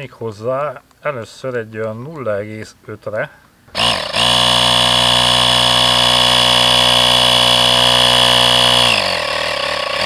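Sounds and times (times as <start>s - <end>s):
tyre compressor running: 3.7s - 10.0s.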